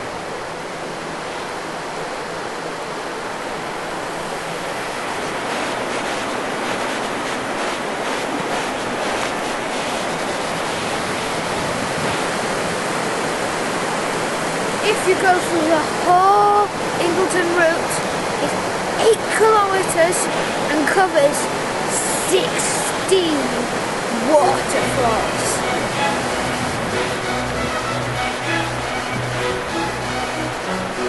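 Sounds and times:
river rushing over boulders: 0.0 - 31.0.

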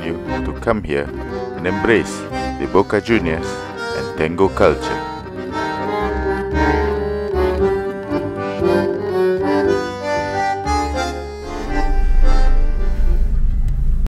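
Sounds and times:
accordion music: 0.0 - 13.8
car rumbling in traffic: 10.4 - 14.0.

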